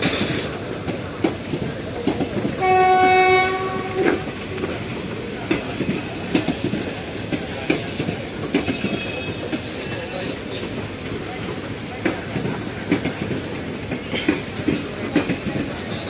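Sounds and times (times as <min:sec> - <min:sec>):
train wheels knocking over rail joints: 0:00.0 - 0:16.0
locomotive horn blast: 0:02.6 - 0:04.3.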